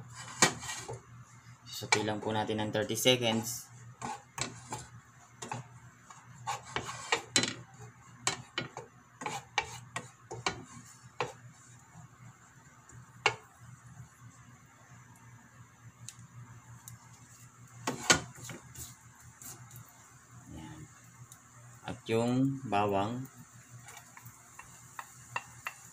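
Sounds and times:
wooden spatula scraping a frying pan: 0.0 - 1.1, 3.2 - 12.1, 17.2 - 19.8
faint steady hum: 0.0 - 25.9
oil frying: 0.0 - 25.9.

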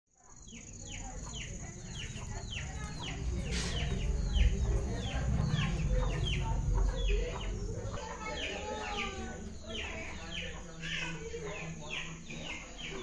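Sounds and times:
bird chirping: 0.2 - 13.0
low rumble: 1.9 - 10.5.

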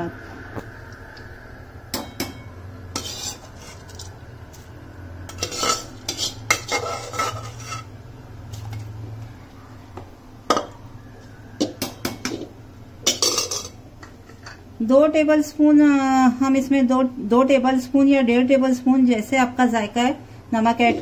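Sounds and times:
metal spoon scraping cooking pot: 2.9 - 4.6, 5.3 - 8.8.

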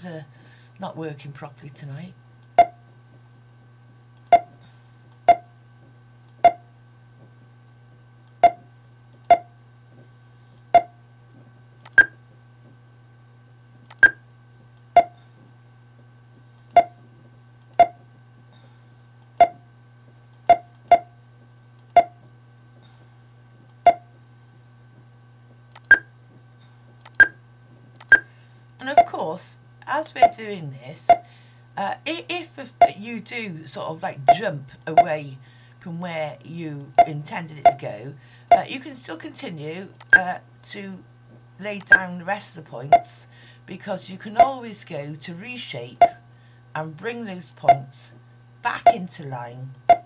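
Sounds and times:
steady low hum: 0.0 - 50.0
computer mouse clicks: 11.8 - 12.1, 25.7 - 26.0, 27.0 - 27.3, 28.0 - 28.2.

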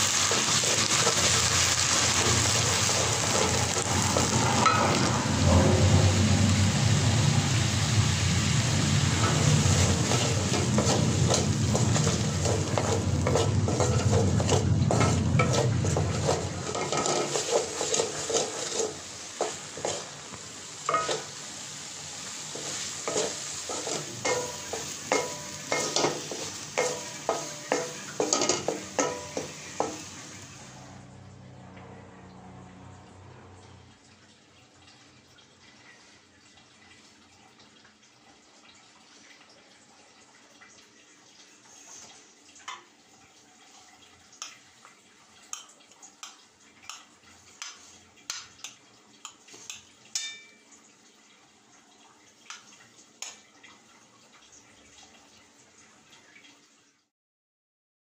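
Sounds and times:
sizzling in pan: 0.0 - 31.0, 40.8 - 56.9
spatula scraping pan: 0.1 - 21.5, 22.5 - 30.4
metal spoon clinking on a plate: 50.1 - 50.6.

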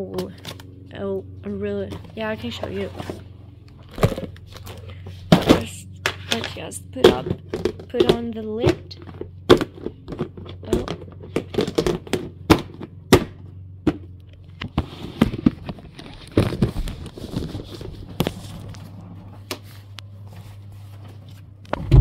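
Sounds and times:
steady low hum: 0.0 - 22.0
plastic box and tools clattering: 3.8 - 12.9, 13.9 - 18.8.

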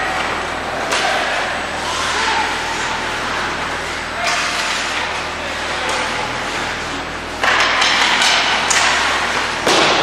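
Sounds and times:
hockey sticks and puck clacking: 0.0 - 2.7, 3.8 - 6.7, 7.3 - 10.0
skates scraping ice: 3.8 - 6.9.

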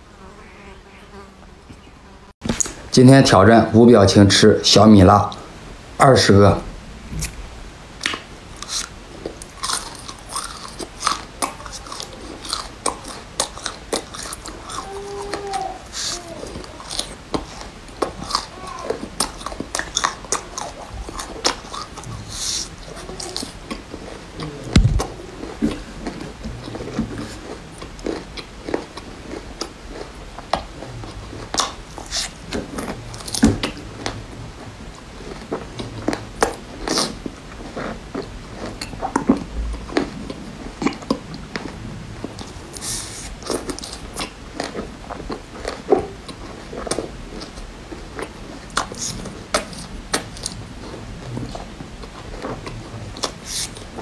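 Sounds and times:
crunchy chewing of chilies: 8.6 - 54.0
low thump: 24.7 - 25.1.

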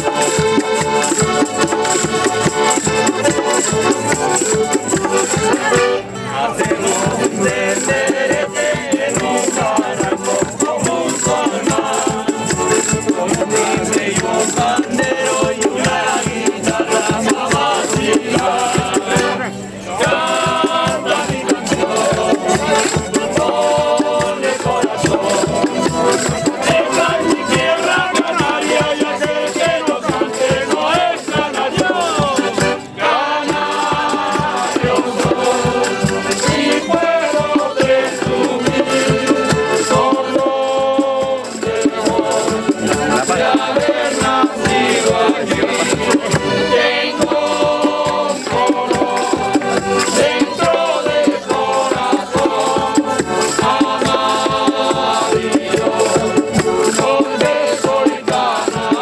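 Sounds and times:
accordion: 0.0 - 59.0
strummed lutes and guitars: 0.0 - 59.0
tambourines and hand drums: 0.0 - 59.0
voices singing in unison: 0.0 - 59.0.

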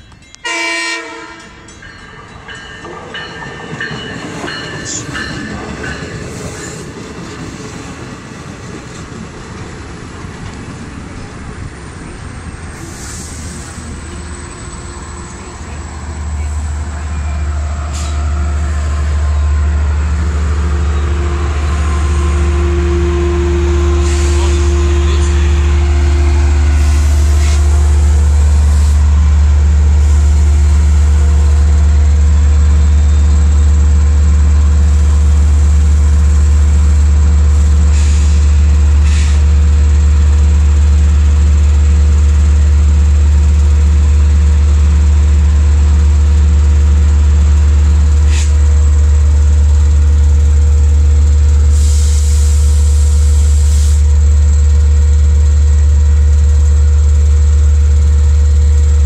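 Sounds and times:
diesel locomotive engine drone: 0.0 - 59.0
air hiss: 12.8 - 13.9, 51.7 - 54.1.

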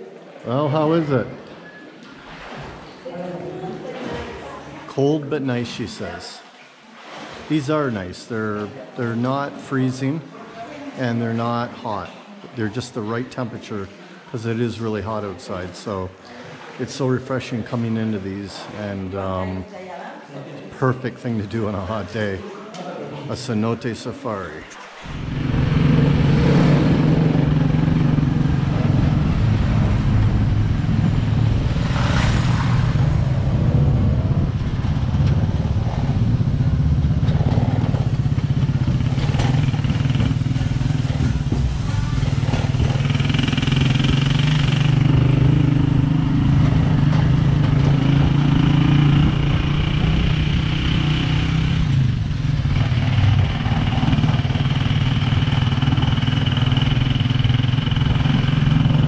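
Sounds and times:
vehicle engine running: 25.0 - 59.0.

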